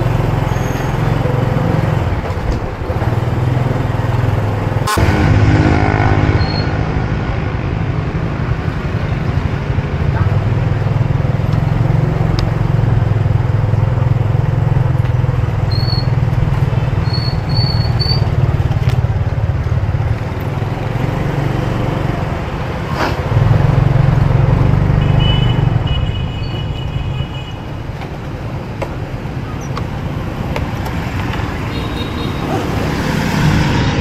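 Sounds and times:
motorbike engine rumble: 0.0 - 21.4
traffic: 0.0 - 34.0
wind and road noise: 0.0 - 34.0.

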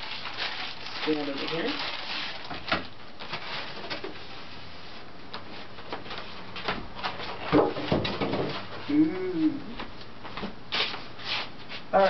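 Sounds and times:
plastic wrap rustling: 0.0 - 8.8.

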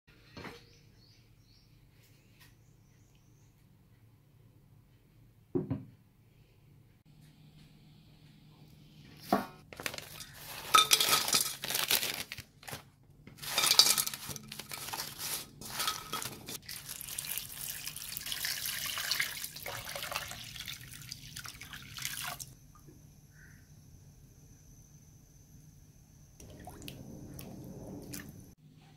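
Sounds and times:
packet rustling: 9.7 - 17.6
dried spices clattering into pot: 9.8 - 12.2, 13.3 - 17.2
water pouring into pot: 15.8 - 22.6, 26.4 - 28.4.

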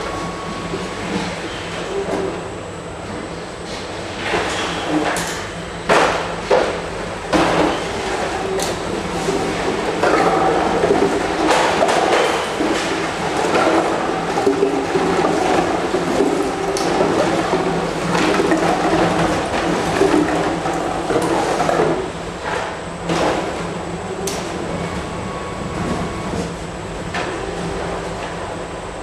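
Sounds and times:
machine hum: 0.0 - 29.0
plastic bottles rattling: 10.0 - 22.0.

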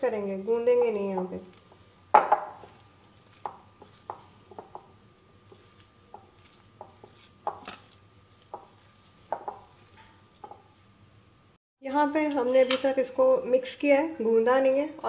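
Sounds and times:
fingers knocking dough in glass bowl: 0.6 - 10.7.

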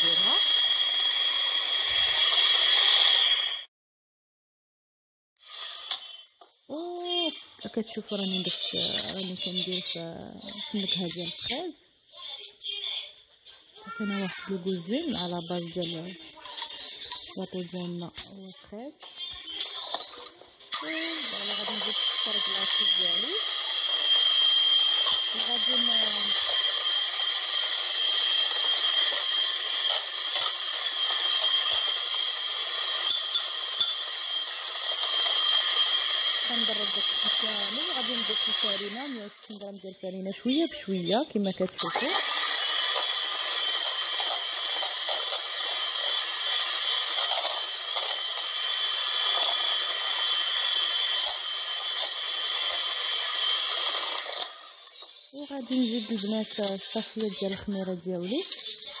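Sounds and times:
electric hand mixer whisking: 0.0 - 3.7, 7.8 - 11.6, 13.9 - 18.3, 19.1 - 59.0.

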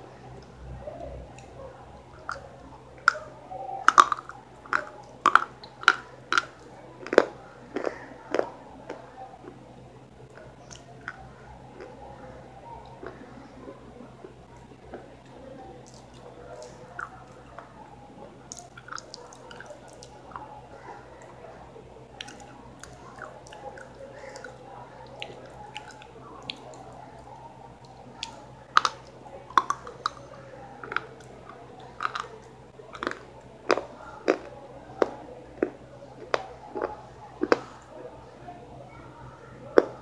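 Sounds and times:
person chewing food: 2.1 - 9.6, 12.8 - 17.7, 18.5 - 21.4, 22.1 - 37.9.

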